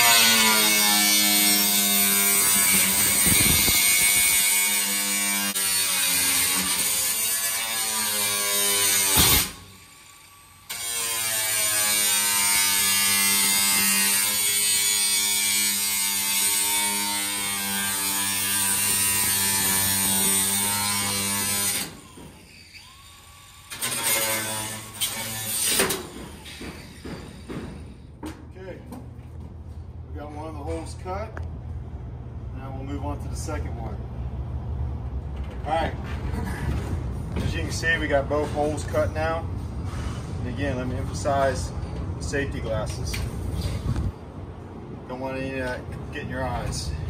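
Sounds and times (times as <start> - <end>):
angle grinder cutting metal: 0.0 - 27.0.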